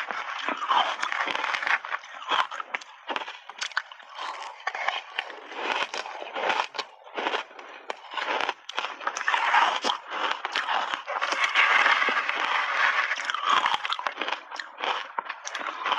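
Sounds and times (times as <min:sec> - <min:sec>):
ice crunching between teeth: 0:00.0 - 0:15.9
metal spoon scraping ice: 0:08.4 - 0:14.7.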